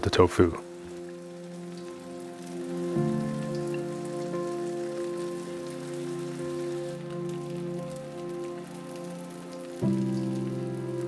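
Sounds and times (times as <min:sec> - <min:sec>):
soft background music: 0:00.0 - 0:11.0
food frying in oil: 0:00.7 - 0:11.0.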